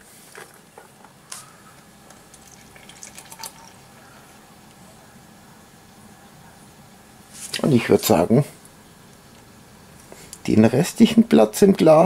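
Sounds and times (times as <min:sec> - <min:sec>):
milk pouring into glass: 0:02.1 - 0:04.1.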